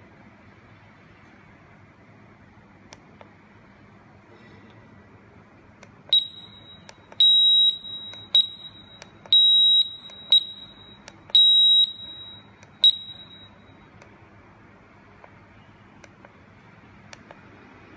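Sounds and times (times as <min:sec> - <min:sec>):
high-pitched buzzer beeps: 0:06.1 - 0:13.9.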